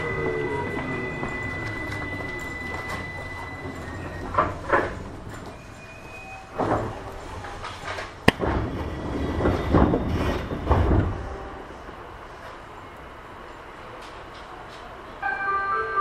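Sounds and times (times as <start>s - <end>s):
train wheels clunking: 0.0s - 12.7s
train low rumble: 0.0s - 16.0s.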